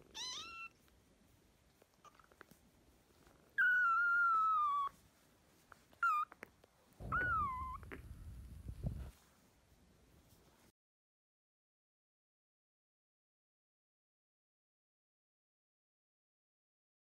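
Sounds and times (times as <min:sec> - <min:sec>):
kitten mewing: 0:00.0 - 0:00.8, 0:07.0 - 0:08.2.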